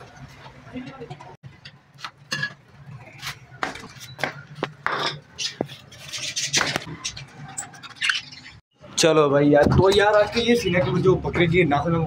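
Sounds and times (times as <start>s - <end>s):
clay bowls clinking: 4.1s - 5.7s.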